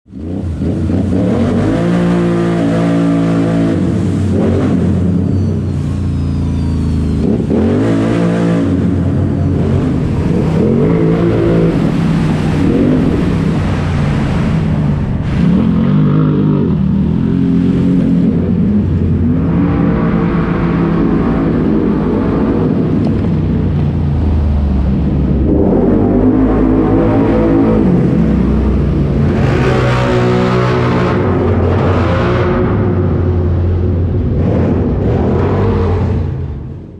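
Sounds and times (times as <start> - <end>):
engine revving in a tunnel: 0.0 - 36.9.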